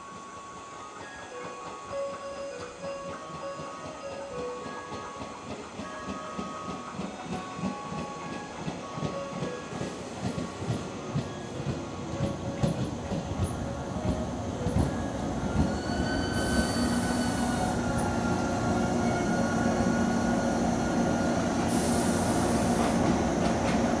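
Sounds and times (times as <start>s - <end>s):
train wheels knocking on rail joints: 4.0s - 15.8s, 22.4s - 24.0s
rising brake squeal: 15.1s - 23.0s
high hiss: 21.0s - 23.2s.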